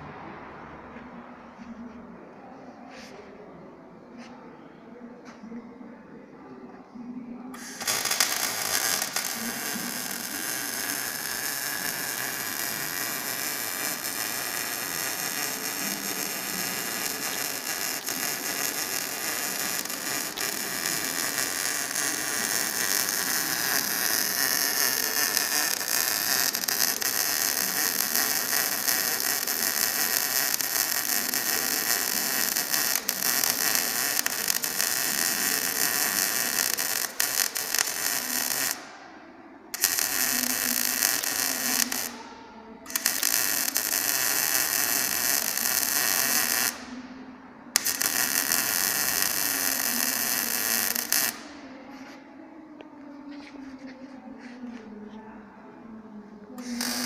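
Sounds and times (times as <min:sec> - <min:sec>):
welding arc crackling hiss: 0:07.6 - 0:38.9, 0:39.8 - 0:42.2, 0:42.9 - 0:46.9, 0:47.8 - 0:51.5, 0:56.6 - 0:57.0.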